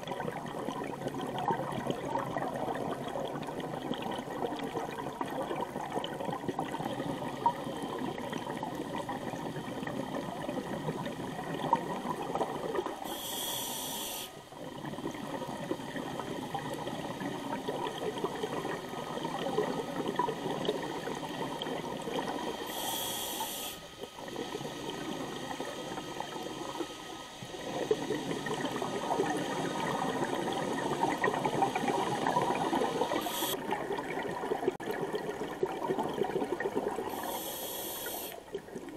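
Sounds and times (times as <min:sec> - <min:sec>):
bubbling of exhaled air: 0:00.0 - 0:38.9
regulator inhalation hiss: 0:13.0 - 0:14.5, 0:21.9 - 0:33.6, 0:37.1 - 0:38.4.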